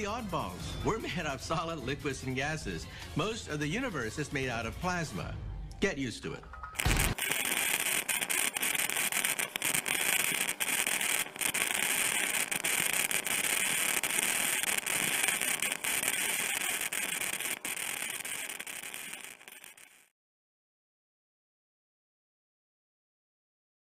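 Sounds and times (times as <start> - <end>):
plasma discharge crackling: 6.8 - 20.1.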